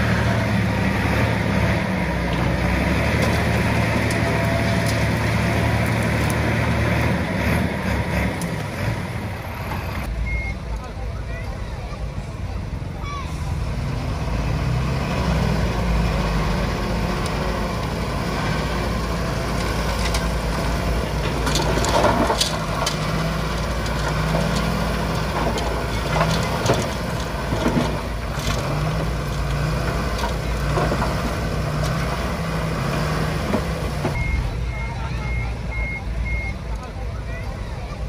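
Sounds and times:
diesel engines running: 0:00.0 - 0:38.0
metal clanks and knocks: 0:21.1 - 0:32.2.

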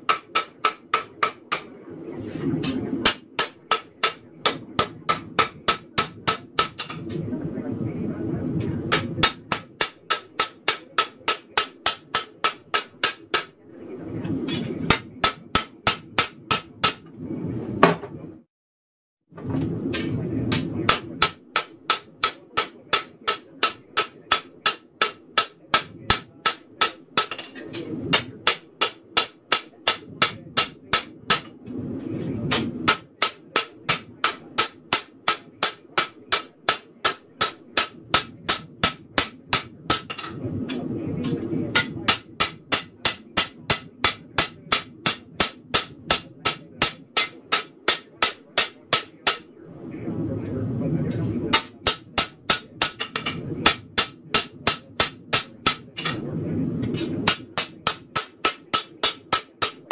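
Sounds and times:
hammer striking blade on anvil: 0:00.0 - 0:01.7, 0:02.7 - 0:07.0, 0:08.9 - 0:13.5, 0:19.9 - 0:31.5, 0:32.5 - 0:40.3, 0:41.3 - 0:49.4, 0:56.8 - 0:59.9
low rushing noise: 0:31.2 - 0:33.2, 0:37.7 - 0:44.4, 0:49.6 - 0:51.6, 0:55.2 - 0:57.6.

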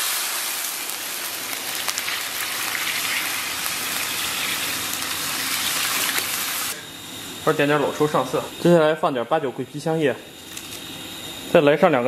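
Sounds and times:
water pouring into hot wok: 0:00.0 - 0:06.8.

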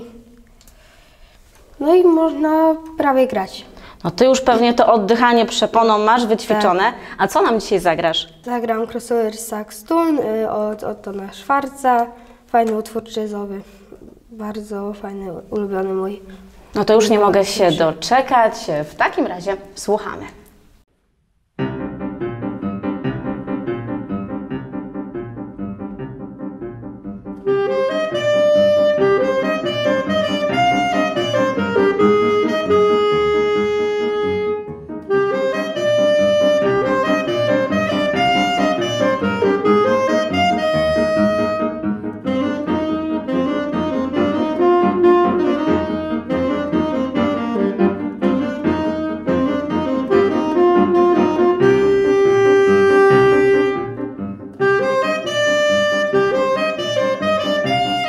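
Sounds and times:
jazz piano chords: 0:21.6 - 0:58.0
alto saxophone melody: 0:27.4 - 0:58.0.

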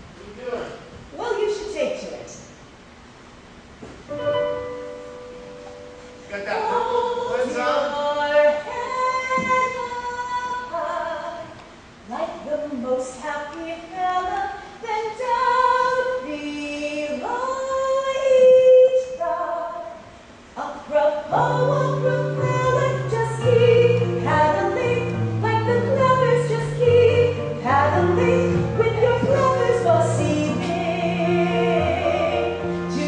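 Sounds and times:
woman singing a ballad: 0:06.6 - 0:33.0
musical accompaniment with bass: 0:21.3 - 0:33.0.

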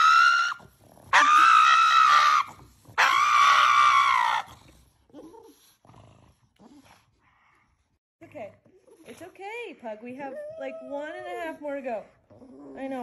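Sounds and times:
dog screaming: 0:00.0 - 0:04.5.

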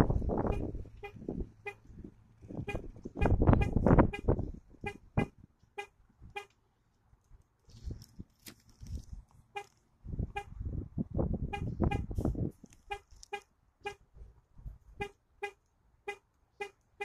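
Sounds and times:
car horn chirping: 0:00.4 - 0:01.9, 0:02.6 - 0:06.5, 0:09.5 - 0:10.6, 0:11.5 - 0:12.2, 0:12.8 - 0:14.1, 0:15.0 - 0:17.0.

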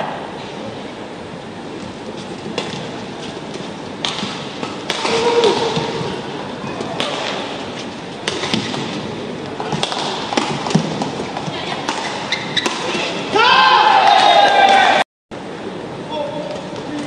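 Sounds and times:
crowd noise in sports hall: 0:00.0 - 0:17.0
racket striking shuttlecock: 0:04.0 - 0:06.1, 0:06.8 - 0:07.6, 0:08.2 - 0:09.0, 0:09.6 - 0:13.2.

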